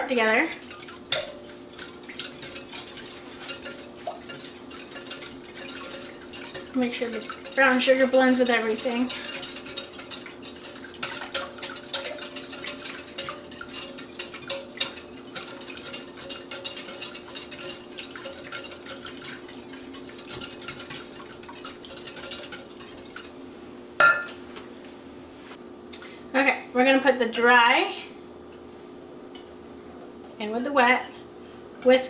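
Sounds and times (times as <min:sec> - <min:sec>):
whisk scraping glass cup: 0:00.1 - 0:23.3.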